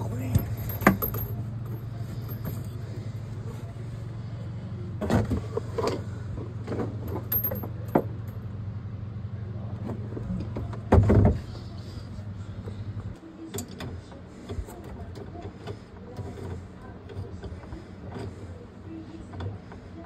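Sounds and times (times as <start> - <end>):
low mechanical hum: 0.0 - 20.0
knocks and clunks: 5.0 - 8.3, 9.8 - 11.6.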